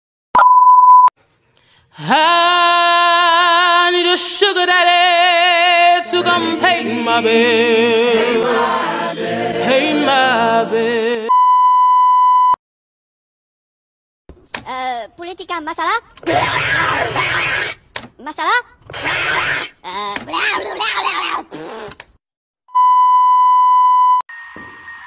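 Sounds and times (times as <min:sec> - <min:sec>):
censor beep: 0:00.4 - 0:01.1, 0:11.3 - 0:12.6, 0:22.7 - 0:25.0
voices singing in harmony: 0:02.0 - 0:11.3.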